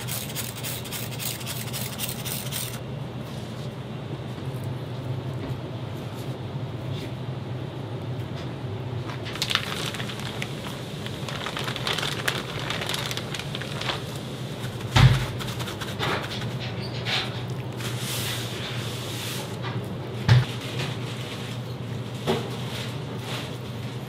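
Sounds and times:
plastic bag crinkling: 9.1s - 16.0s.

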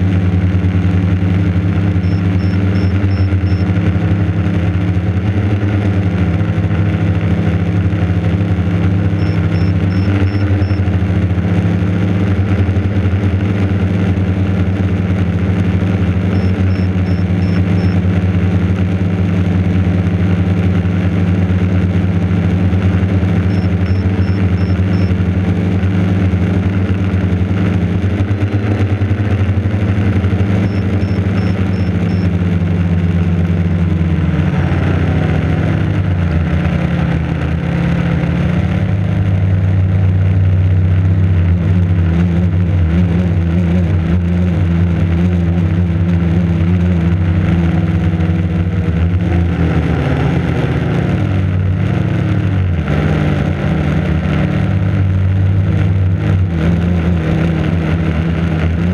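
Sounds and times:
quadcopter propellers buzzing: 0.0s - 39.1s.

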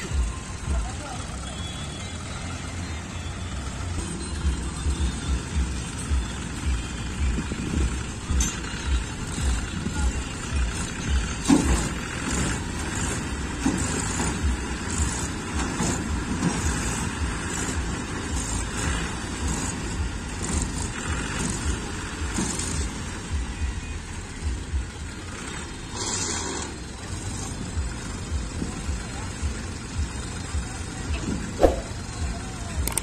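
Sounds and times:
tractor diesel engines running: 0.0s - 33.0s.

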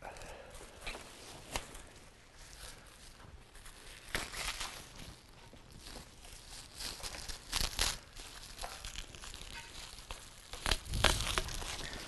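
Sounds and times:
plastic wrap tearing and crinkling: 1.1s - 12.0s.

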